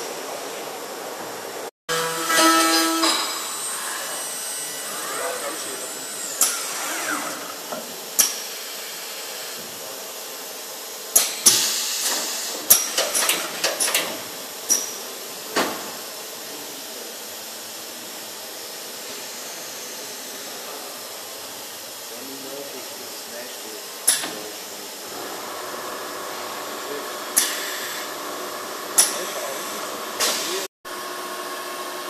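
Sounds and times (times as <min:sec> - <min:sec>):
metallic clacks of air cylinders: 0:11.1 - 0:16.0, 0:24.0 - 0:24.5, 0:29.0 - 0:29.5
compressed air hiss: 0:11.5 - 0:12.7.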